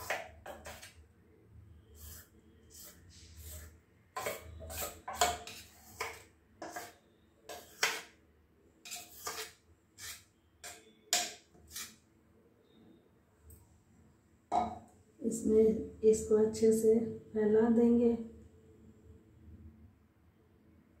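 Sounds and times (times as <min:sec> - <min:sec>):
metal spoon scraping steel bowl: 0:00.0 - 0:01.0, 0:02.0 - 0:08.2, 0:08.8 - 0:12.0.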